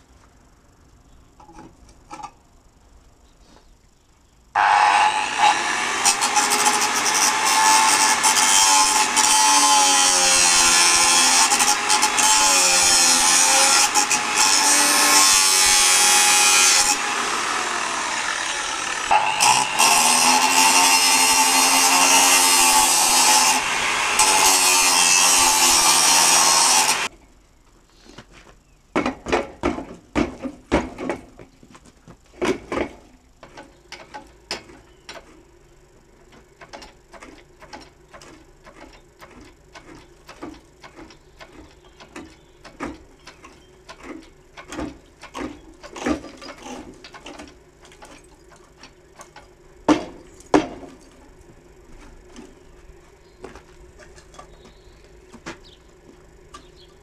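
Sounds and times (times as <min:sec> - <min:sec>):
angle grinder cutting steel: 0:04.6 - 0:27.1.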